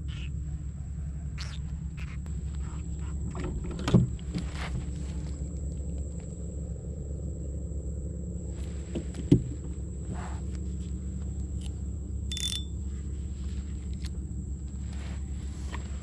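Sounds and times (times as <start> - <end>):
high-pitched insect drone: 0.0 - 16.0
low rumble: 0.0 - 16.0.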